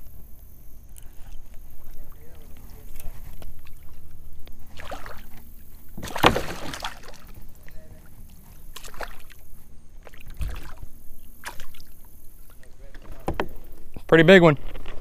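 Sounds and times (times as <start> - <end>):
fish splashing at water surface: 4.7 - 7.4, 8.5 - 12.3.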